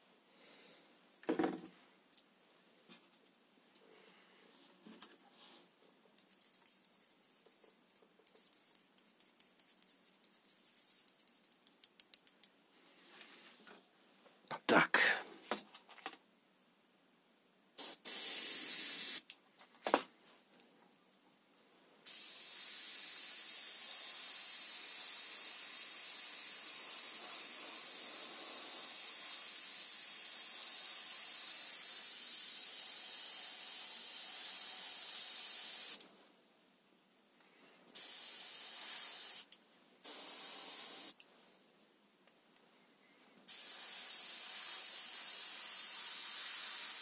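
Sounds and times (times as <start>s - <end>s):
airbrush spraying hiss: 17.8s - 19.3s, 22.1s - 36.0s, 37.9s - 41.2s, 43.5s - 47.0s.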